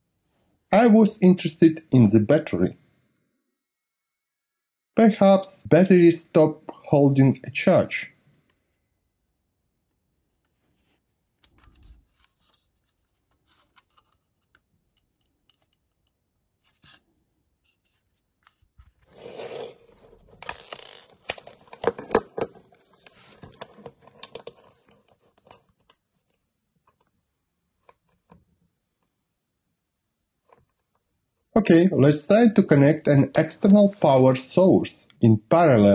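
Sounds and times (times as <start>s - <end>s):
scraping and rubbing: 16.6s - 21.7s, 22.7s - 26.4s.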